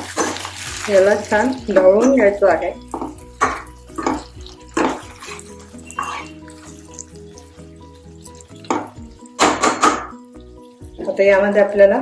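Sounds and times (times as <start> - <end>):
metal spatula scraping a pan: 0.0 - 11.7
soft background music: 0.0 - 12.0.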